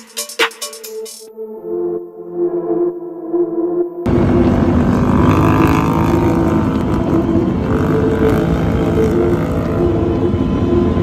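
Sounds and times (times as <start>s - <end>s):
quad bike engines droning: 4.1s - 11.0s.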